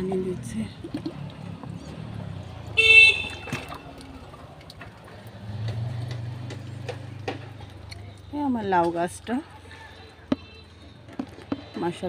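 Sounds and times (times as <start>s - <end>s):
vehicle horn: 2.8s - 3.8s.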